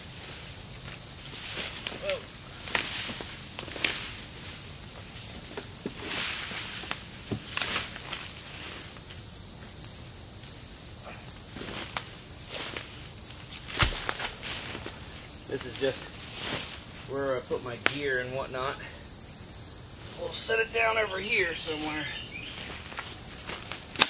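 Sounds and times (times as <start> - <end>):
footsteps rustling through weeds: 0.0 - 9.2, 11.4 - 17.1, 22.1 - 24.0
insects droning: 0.0 - 24.0.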